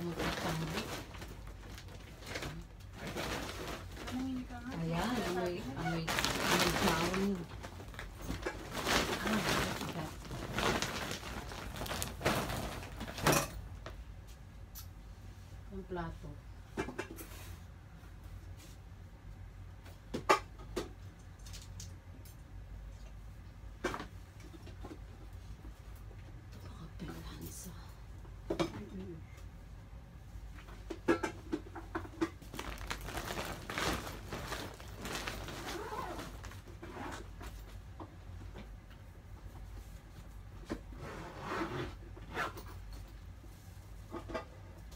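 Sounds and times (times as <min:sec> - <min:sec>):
plastic bags rustling and crinkling: 0:00.0 - 0:14.0, 0:31.9 - 0:38.0
plastic crackle: 0:00.0 - 0:14.0, 0:31.6 - 0:37.8.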